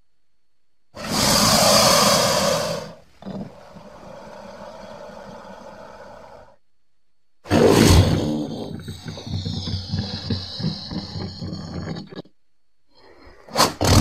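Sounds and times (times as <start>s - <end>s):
crocodile hissing and growling: 1.0s - 6.6s, 7.5s - 12.3s.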